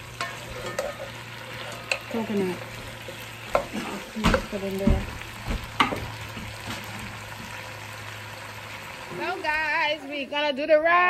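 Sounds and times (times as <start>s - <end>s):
meat sizzling: 0.0s - 10.4s
metal spoon scraping a pot: 0.1s - 4.1s.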